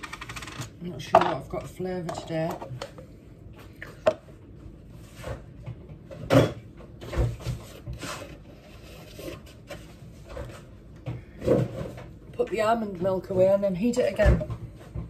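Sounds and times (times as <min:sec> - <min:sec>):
kitchen items knocking and clicking: 0:00.0 - 0:03.0, 0:05.2 - 0:08.0, 0:14.0 - 0:15.0.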